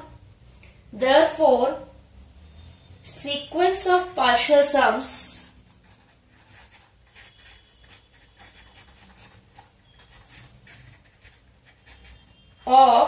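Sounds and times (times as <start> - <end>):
pen scratching on paper: 5.1 - 12.9.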